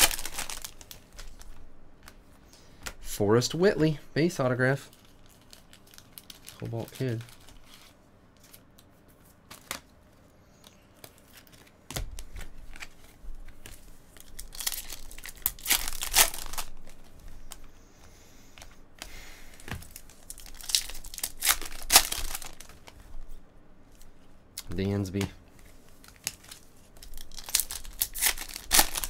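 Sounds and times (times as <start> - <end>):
foil wrapper crinkling: 0.0 - 1.6, 4.8 - 8.8, 12.6 - 17.6, 19.8 - 23.0, 26.0 - 29.0.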